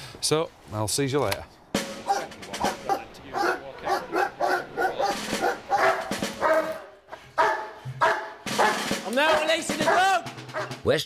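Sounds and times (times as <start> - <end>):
dog barking: 2.1 - 10.8.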